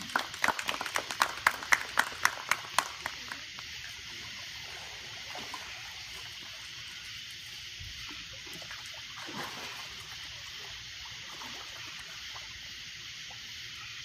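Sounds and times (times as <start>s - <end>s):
water slaps: 0.0s - 4.0s
water trickling: 0.0s - 14.0s.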